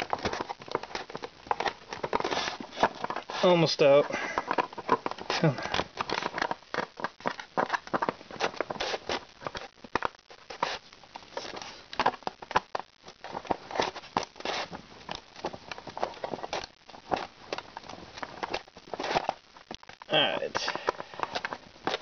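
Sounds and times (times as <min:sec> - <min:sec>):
rubbing against styrofoam: 0:00.0 - 0:09.7, 0:10.4 - 0:11.9, 0:13.3 - 0:14.8.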